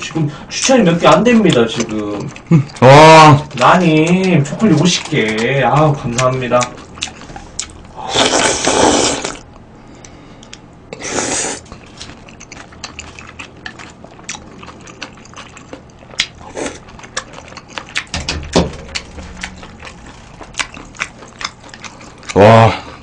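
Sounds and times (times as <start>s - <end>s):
chewing: 0.0s - 9.4s, 11.3s - 23.0s
loud slurping of soup: 8.0s - 9.4s, 11.0s - 11.6s.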